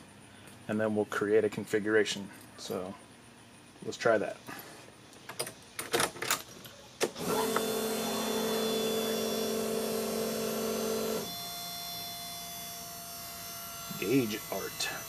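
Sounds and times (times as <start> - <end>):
faint steady hum: 0.0 - 5.8
electric fuel pump whining: 7.0 - 15.0.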